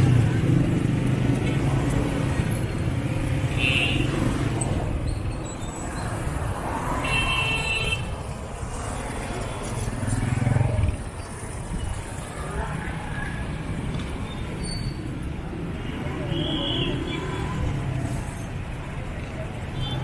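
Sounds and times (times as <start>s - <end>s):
motorcycle engines running: 0.0s - 5.0s.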